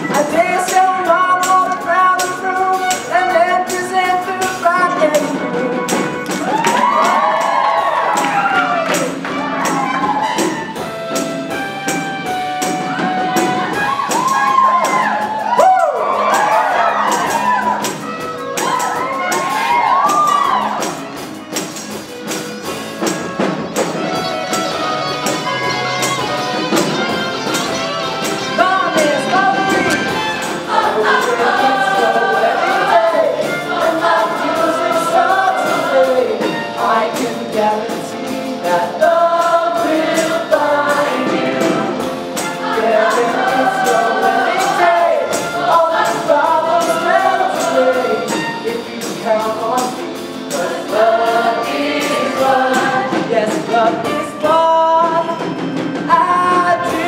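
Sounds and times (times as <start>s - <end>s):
drums beat: 0.0s - 57.0s
live band: 0.0s - 57.0s
cast singing in chorus: 30.6s - 48.8s, 49.4s - 53.9s.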